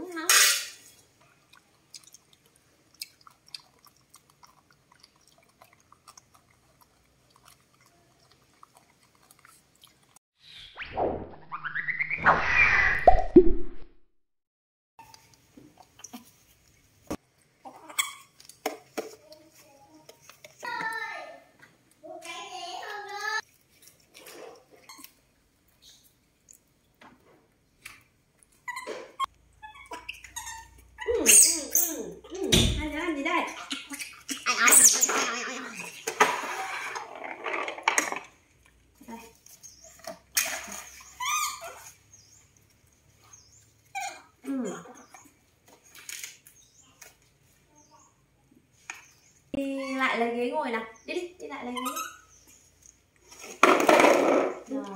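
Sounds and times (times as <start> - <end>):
macaques chewing corn kernels: 1.0 - 10.2, 23.4 - 27.0
baby monkeys squeaking: 28.6 - 32.7, 33.5 - 36.0, 41.0 - 42.0, 51.6 - 52.6.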